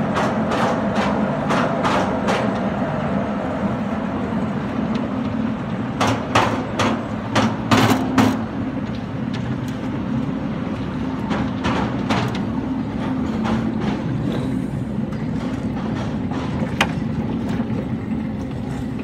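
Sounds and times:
train wheels clacking: 0.0s - 2.7s.

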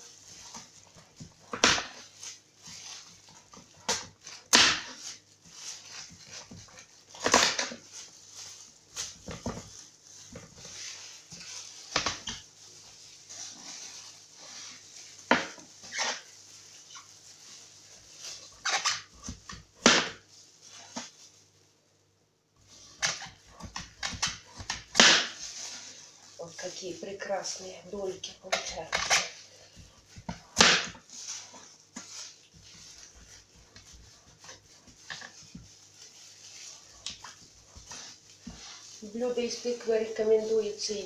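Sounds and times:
knife scraping pumpkin peel: 18.1s - 19.6s, 27.5s - 41.0s.

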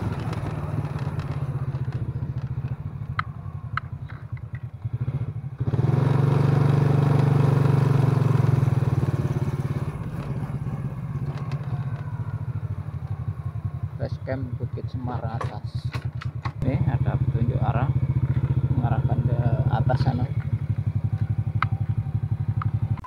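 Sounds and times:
sharp rattling clicks: 0.0s - 4.8s, 11.1s - 12.2s, 15.2s - 16.6s
motorcycle engine revving: 0.0s - 23.0s.

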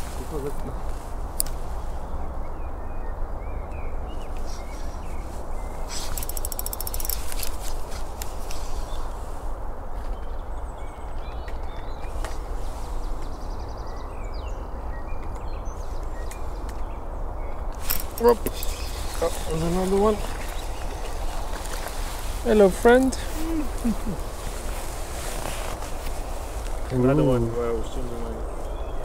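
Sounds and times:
spinning reel winding: 6.1s - 7.5s
rapid ratcheting clicks: 6.1s - 7.6s, 17.9s - 18.6s
faint bird chirps: 17.8s - 21.4s.

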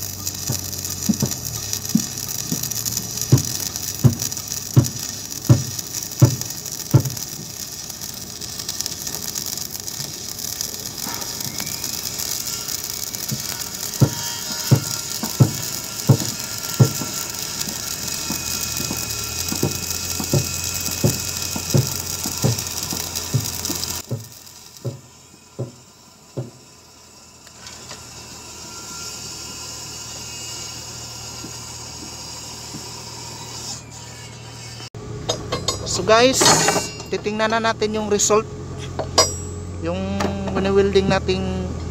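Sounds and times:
welding arc crackling and hissing: 0.0s - 34.9s, 35.9s - 41.9s
regular thuds: 0.3s - 7.4s, 13.3s - 25.8s.

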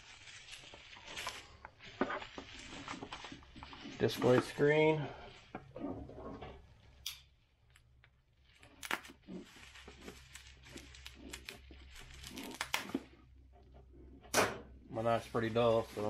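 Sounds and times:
plastic packaging crinkling and tearing: 0.0s - 5.6s, 7.6s - 13.4s.

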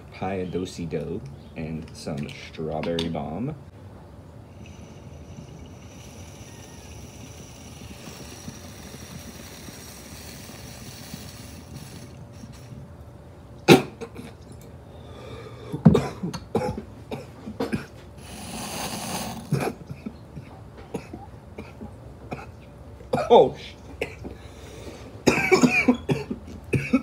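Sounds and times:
steady airy hiss: 0.0s - 14.2s, 14.8s - 22.5s
man coughing hard: 13.7s - 14.4s, 15.7s - 18.0s, 19.1s - 24.3s, 25.2s - 27.0s.

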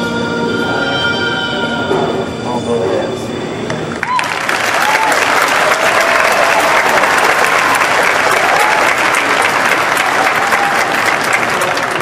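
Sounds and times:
large audience applauding: 4.0s - 12.0s.

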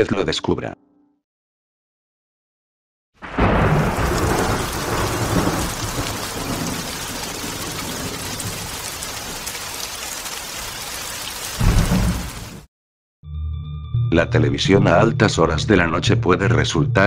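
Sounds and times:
thunder rumble: 3.2s - 9.4s, 11.5s - 12.6s
heavy rain: 3.2s - 12.7s.

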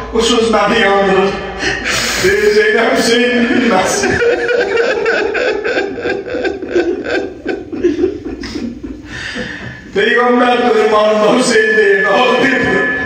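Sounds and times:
person sobbing: 1.5s - 2.6s, 3.4s - 10.0s.

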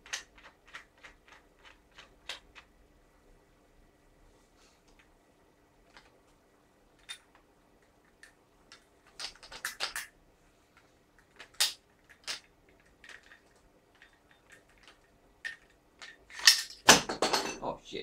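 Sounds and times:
small metal parts clicking: 0.0s - 2.7s, 7.0s - 10.2s, 10.8s - 17.0s.

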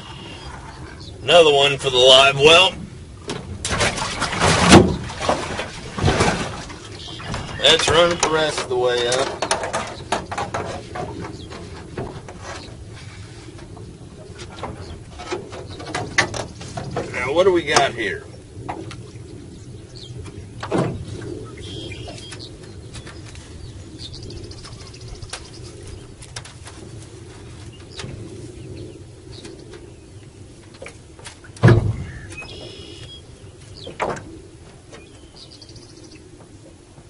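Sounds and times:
birds calling: 0.0s - 3.3s, 4.0s - 36.8s
knocks in aluminum boat: 3.2s - 12.7s, 14.4s - 17.9s, 20.6s - 21.2s, 30.8s - 33.2s, 33.8s - 35.2s.

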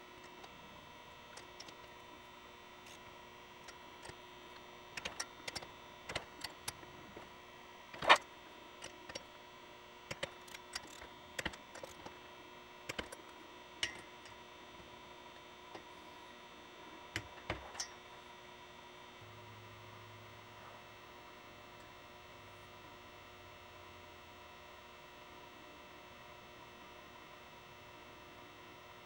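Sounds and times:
faint steady hum: 0.0s - 29.0s.

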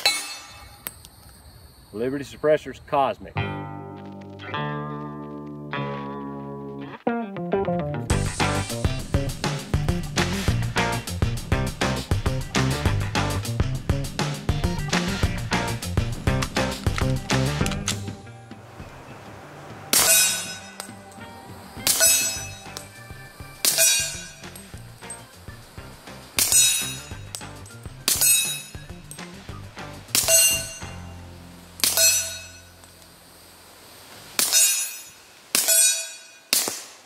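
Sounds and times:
background music: 3.4s - 32.7s
suppressed pistol shots: 36.5s - 37.0s.

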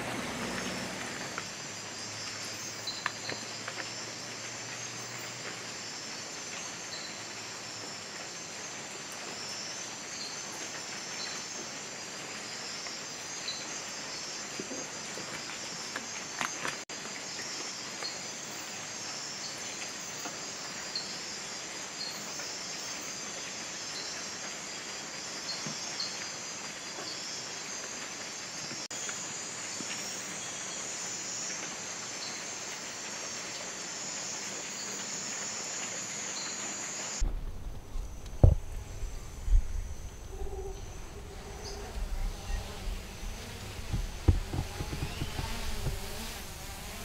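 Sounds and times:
insect chorus drone: 0.0s - 47.0s
faint chirps: 36.1s - 47.0s
sharp knocks: 37.2s - 40.0s, 43.4s - 46.4s
low rumble: 37.2s - 47.0s.

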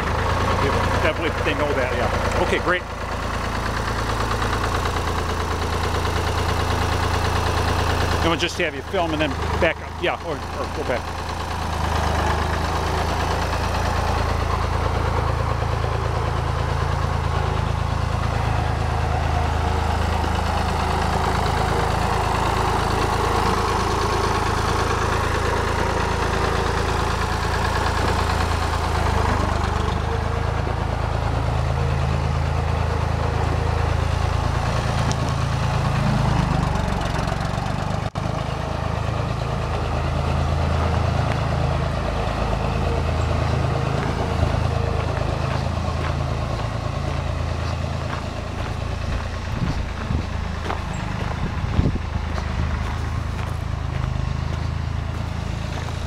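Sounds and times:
diesel tractor engine running: 0.0s - 56.0s.

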